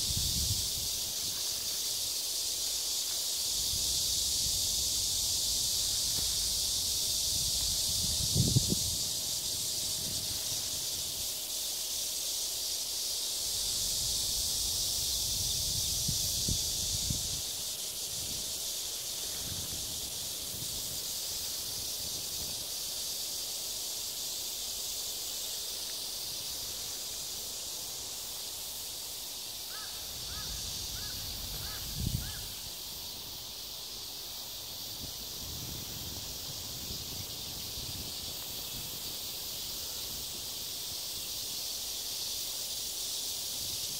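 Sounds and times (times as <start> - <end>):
wind rumble on microphone: 0.0 - 1.0, 7.3 - 11.0, 31.0 - 32.5
high-pitched insect chorus: 0.0 - 43.9.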